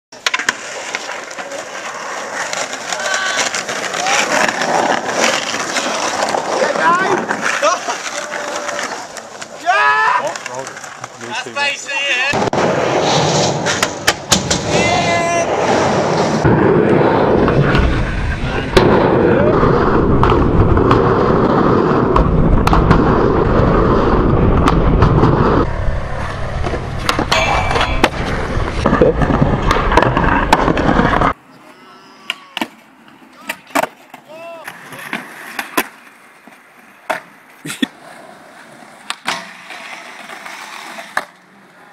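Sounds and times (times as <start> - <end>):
skateboard wheels rolling on concrete: 0.1 - 41.9
skateboard clacks: 0.2 - 12.6, 20.1 - 23.5, 32.2 - 41.8
people talking and calling out: 5.6 - 12.4
clattering impacts: 26.6 - 31.2.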